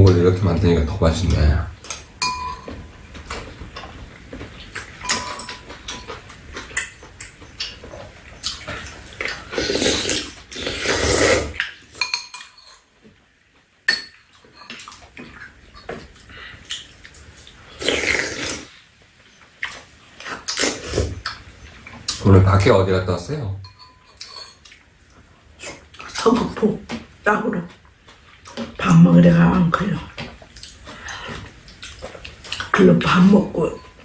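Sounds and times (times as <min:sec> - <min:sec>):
utensils clinking against bowls: 0:01.8 - 0:04.0, 0:04.6 - 0:09.4, 0:11.6 - 0:12.9, 0:13.9 - 0:15.0, 0:23.6 - 0:24.8, 0:32.4 - 0:34.0
chewing: 0:02.6 - 0:11.8, 0:14.2 - 0:22.2, 0:24.2 - 0:26.3, 0:27.7 - 0:28.8, 0:30.1 - 0:32.8
slurping: 0:08.4 - 0:11.7, 0:17.6 - 0:18.8.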